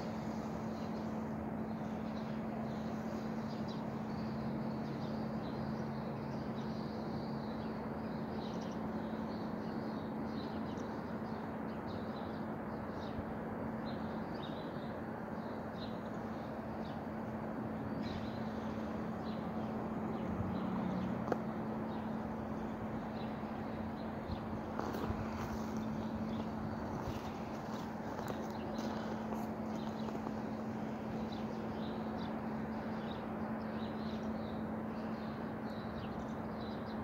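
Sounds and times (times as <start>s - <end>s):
birds chirping: 13.9s - 37.0s.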